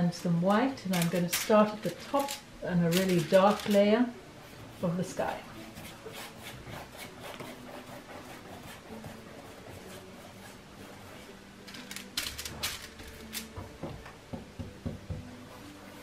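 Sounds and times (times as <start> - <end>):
paintbrush scraping on canvas: 5.6 - 11.4.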